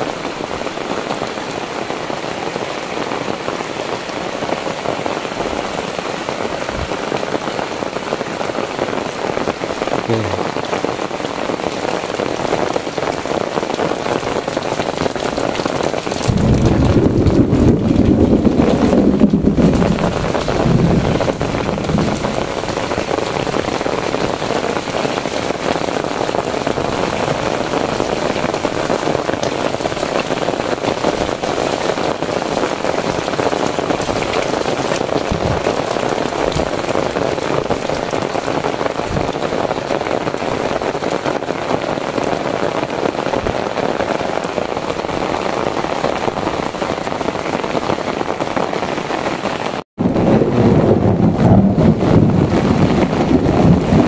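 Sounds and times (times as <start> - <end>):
heavy rain on roofs: 0.0 - 54.0
low rumble: 16.2 - 23.1.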